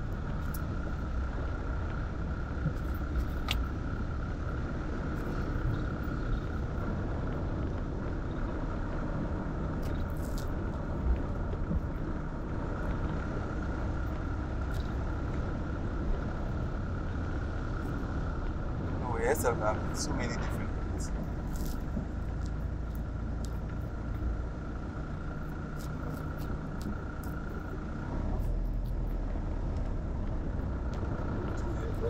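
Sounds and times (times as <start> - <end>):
constant hum: 0.0 - 32.0
vehicle engine and road rumble: 0.0 - 32.0
faint ticks: 0.1 - 1.2, 21.2 - 24.3, 28.4 - 31.7.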